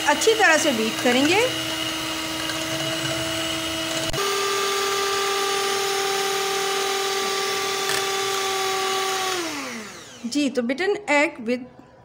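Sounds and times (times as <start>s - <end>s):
beaters whisking in glass bowl: 0.0s - 4.2s
electric hand mixer whining: 0.0s - 10.4s.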